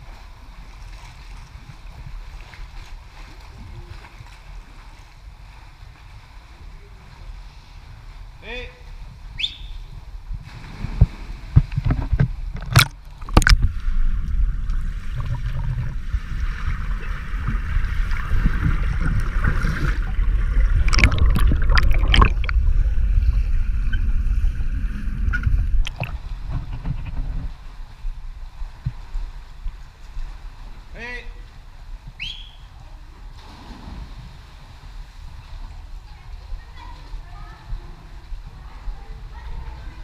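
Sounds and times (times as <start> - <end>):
water splashing: 0.0 - 32.7, 33.3 - 40.0
underwater rushing and bubbling: 10.2 - 30.5.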